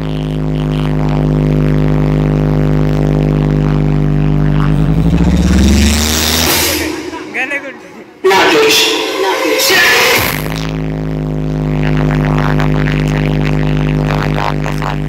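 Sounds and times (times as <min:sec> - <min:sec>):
deep bass: 0:00.0 - 0:15.0
held synth note: 0:04.4 - 0:10.7.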